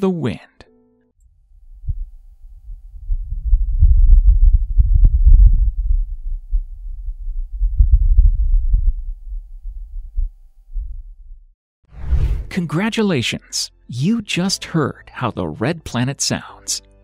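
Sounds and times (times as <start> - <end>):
wind rumble: 1.3 - 12.5.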